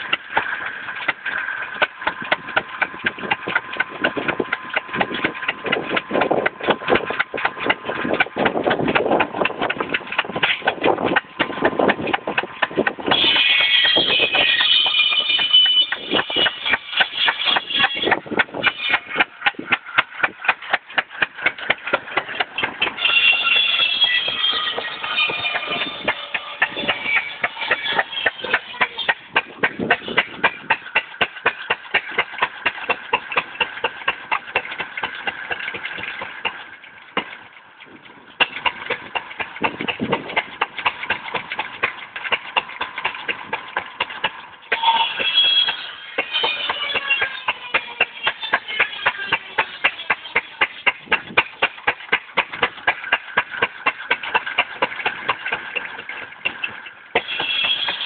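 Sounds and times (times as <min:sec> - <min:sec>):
loud noisy sound: 0:00.0 - 0:31.0
engine clattering: 0:00.0 - 0:58.0.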